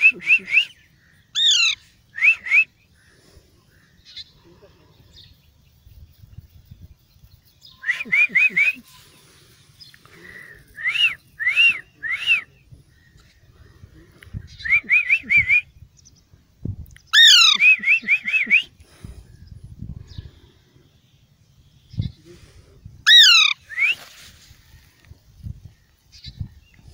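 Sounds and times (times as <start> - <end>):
person whistling: 10.8 - 12.4
parakeet whistling: 17.2 - 18.1.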